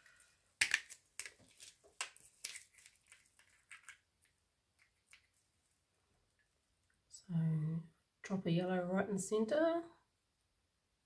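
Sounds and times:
small bottle being shaken: 1.2s - 4.0s.

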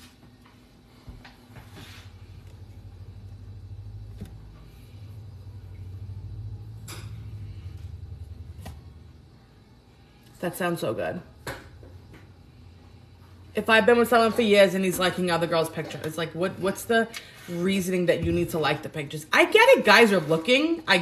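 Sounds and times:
low fluttering motor rumble: 2.1s - 10.2s.

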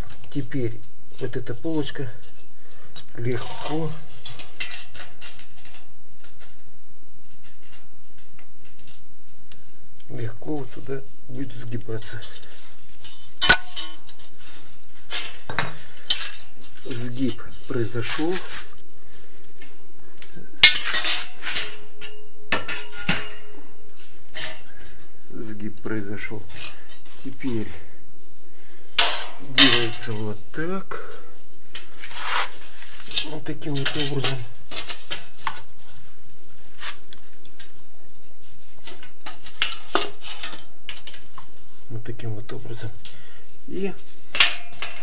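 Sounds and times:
metal profile clanking: 13.0s - 14.2s, 20.6s - 23.6s, 29.0s - 30.2s.

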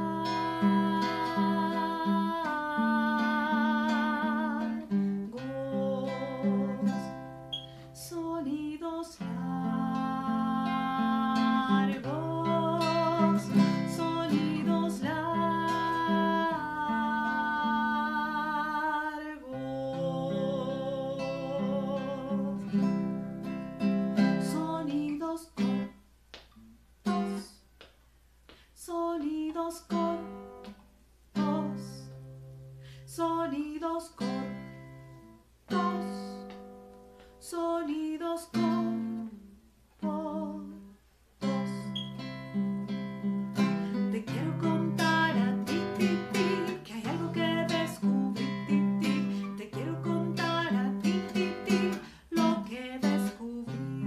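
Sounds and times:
woman singing: 0.0s - 7.4s, 8.0s - 23.1s, 24.2s - 26.0s, 27.1s - 27.6s, 28.8s - 30.7s, 31.4s - 32.3s, 33.0s - 34.9s, 35.7s - 36.6s, 37.4s - 54.0s
nylon-string guitar playing: 0.0s - 8.2s, 9.2s - 26.0s, 34.1s - 37.2s, 41.4s - 54.0s.

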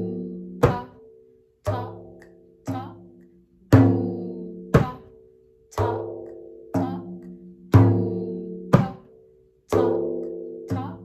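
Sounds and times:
frame drum struck by hand: 0.0s - 1.0s, 3.7s - 5.1s, 5.8s - 9.1s.

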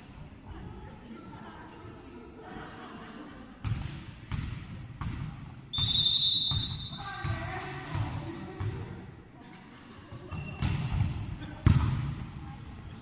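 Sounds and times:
volleyball bouncing on wooden floor: 3.6s - 5.4s, 6.5s - 8.9s, 10.2s - 12.2s
referee whistle blast: 5.7s - 7.0s.

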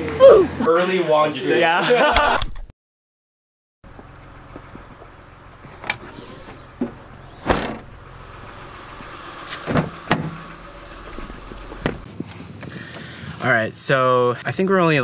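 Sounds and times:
steady low hum: 3.9s - 12.1s
rear hatch shutting with thud: 5.6s - 8.0s, 9.4s - 12.1s.

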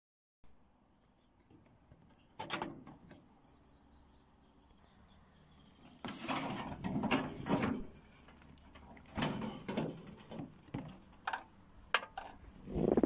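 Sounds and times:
hands handling mower controls: 5.8s - 12.4s.

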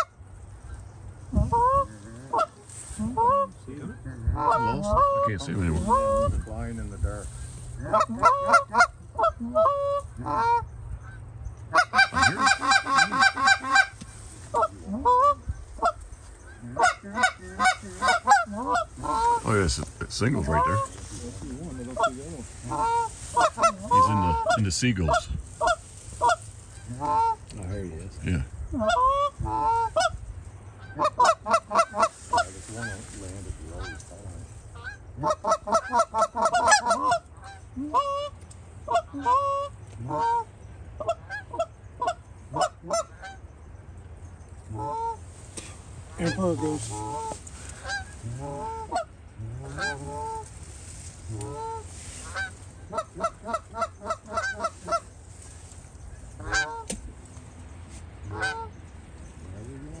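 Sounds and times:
geese honking and clucking: 0.0s - 43.8s, 44.6s - 60.0s.

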